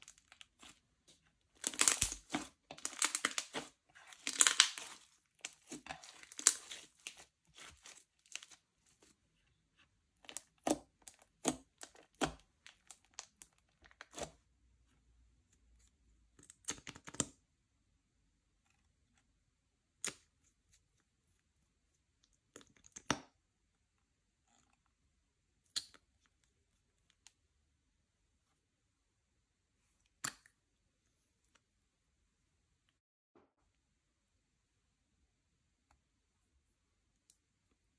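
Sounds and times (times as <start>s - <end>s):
slime crackling and popping: 1.6s - 8.6s.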